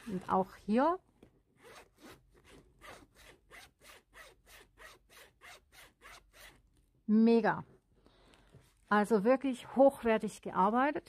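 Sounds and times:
zipper being pulled open: 0:00.0 - 0:00.6, 0:01.6 - 0:06.7.

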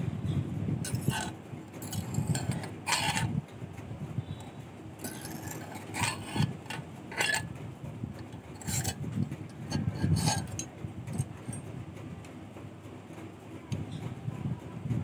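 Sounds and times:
file scraping steel wire: 0:00.9 - 0:03.4, 0:04.3 - 0:11.6.

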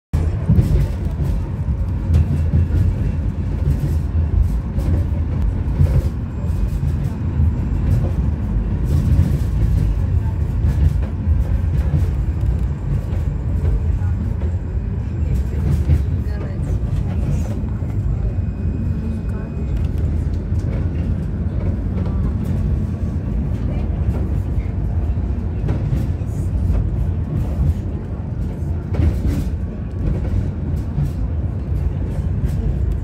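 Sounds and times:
tram wheels rumbling on rails: 0:00.1 - 0:33.0.

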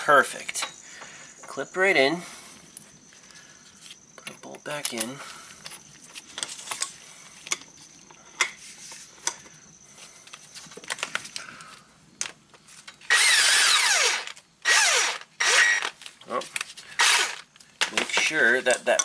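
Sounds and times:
power tool spinning bolt: 0:13.1 - 0:16.0, 0:17.0 - 0:17.4.

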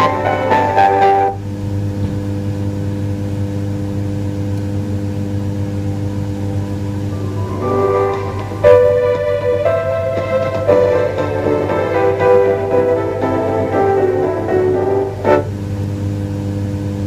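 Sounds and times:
music from small speaker: 0:00.0 - 0:01.4, 0:05.6 - 0:15.6
electrical hum: 0:00.0 - 0:17.0.

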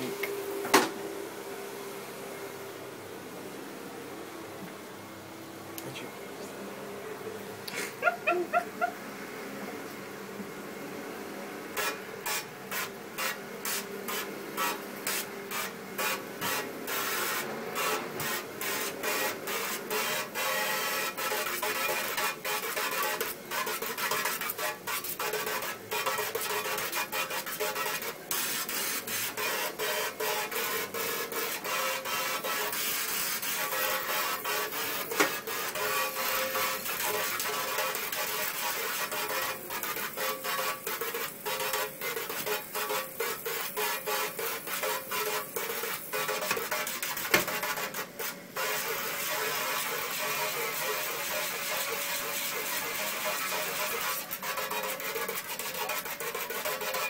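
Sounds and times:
water jet spraying steel sink: 0:11.8 - 0:57.0.

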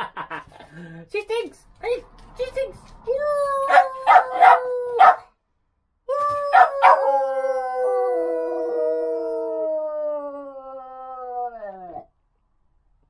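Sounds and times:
dog howling: 0:03.5 - 0:05.3, 0:06.2 - 0:12.1.

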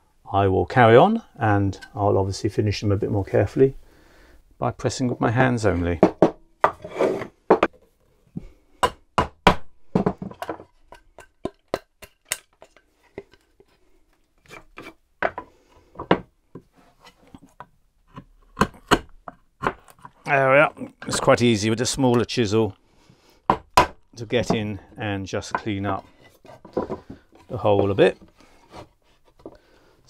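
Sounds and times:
chisel scraping wood: 0:06.7 - 0:07.4, 0:14.4 - 0:15.4, 0:25.6 - 0:29.6.

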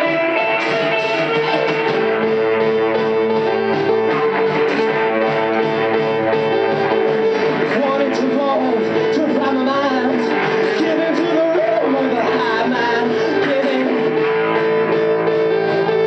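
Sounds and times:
pop band playing: 0:00.0 - 0:16.0
person singing into microphone: 0:07.5 - 0:14.8.

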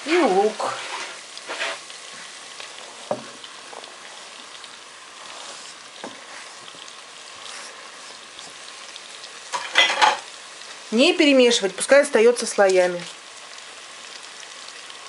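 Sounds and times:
meat sizzling in a pot: 0:00.0 - 0:15.0
onion scraped off cutting board: 0:00.7 - 0:01.9.

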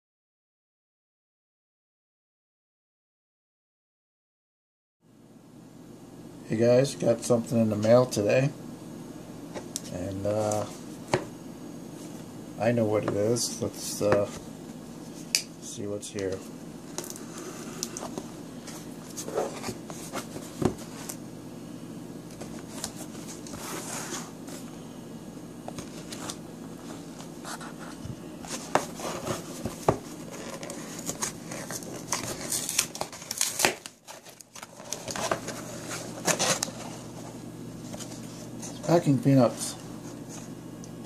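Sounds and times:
cardboard tearing: 0:28.5 - 0:37.0.

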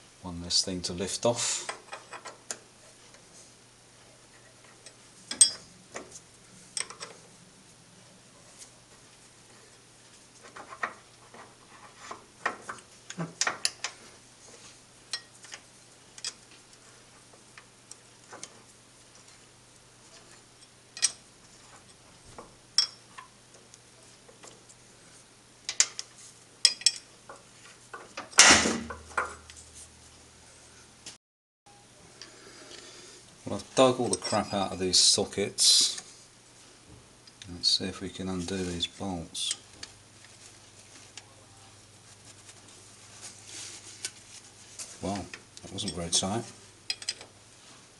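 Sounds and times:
metal clunk: 0:28.3 - 0:29.5.

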